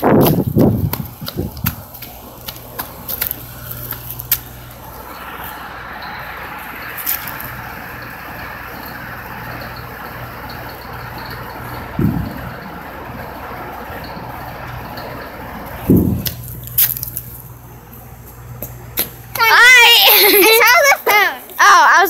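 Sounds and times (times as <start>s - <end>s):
machine hum: 0.0s - 21.3s
rushing noise: 4.5s - 17.0s
low thump: 12.0s - 12.7s, 15.8s - 16.5s.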